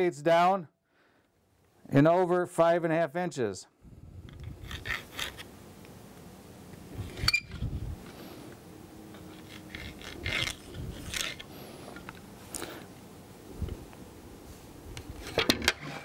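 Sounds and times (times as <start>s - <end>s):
plastic tool rubbing on ball: 9.2s - 11.5s.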